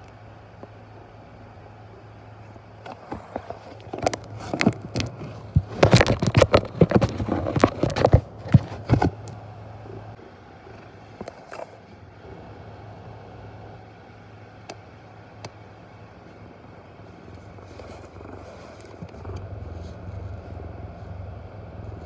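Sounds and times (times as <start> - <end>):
cat scratching at a box: 2.9 - 9.3.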